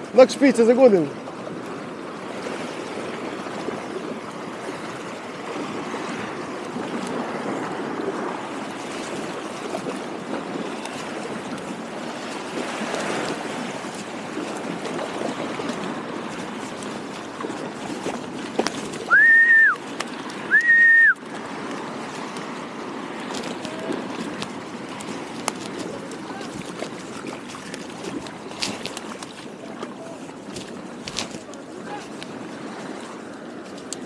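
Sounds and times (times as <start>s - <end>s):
water rushing and splashing: 0.0s - 34.0s.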